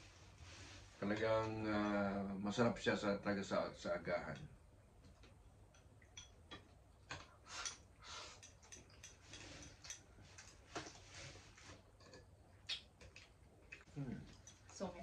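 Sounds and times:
chopsticks clicking on bowls: 5.1s - 10.6s
chewing mouth noises: 12.0s - 14.8s.

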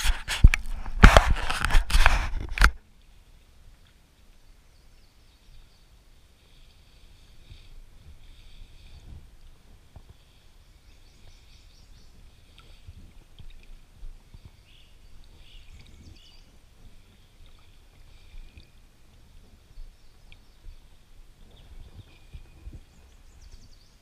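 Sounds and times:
birds chirping: 10.2s - 12.6s, 14.3s - 16.6s, 19.7s - 24.0s.

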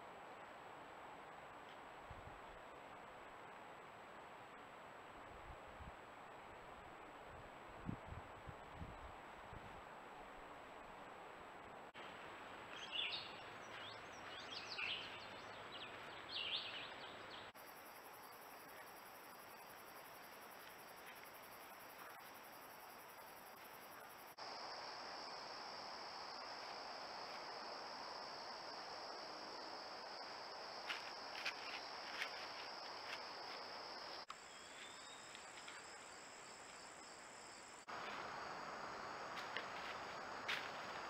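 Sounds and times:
crickets chirping: 10.5s - 41.0s.

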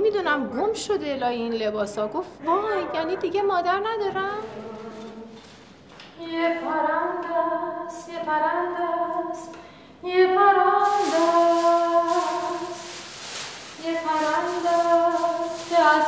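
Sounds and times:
woman singing with vibrato: 2.5s - 5.4s, 6.2s - 16.0s
broad hiss: 10.8s - 16.0s.

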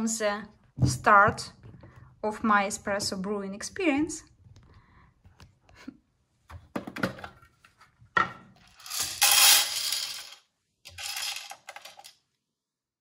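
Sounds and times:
coffee beans rattling into hopper: 8.7s - 10.3s, 10.9s - 12.0s.

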